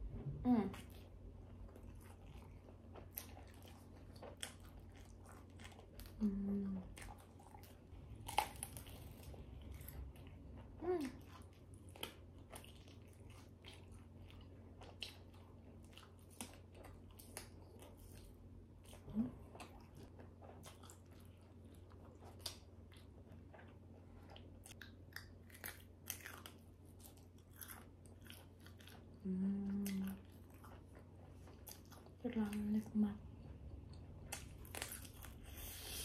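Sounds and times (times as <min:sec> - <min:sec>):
person chewing with wet clicks: 0:00.8 - 0:35.8
person humming: 0:06.2 - 0:06.8, 0:29.2 - 0:30.1.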